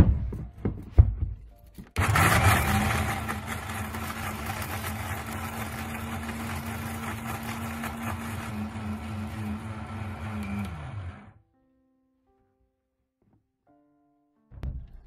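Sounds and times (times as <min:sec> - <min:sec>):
mixer grinder motor humming: 0:02.0 - 0:11.4.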